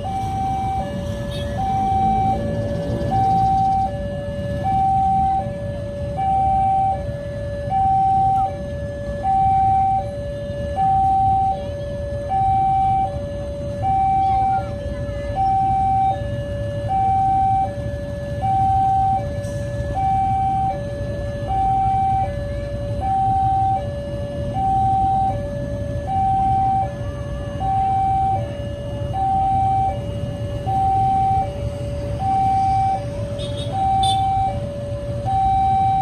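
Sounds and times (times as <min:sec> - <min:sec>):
level crossing two-tone alarm: 0:00.0 - 0:36.0.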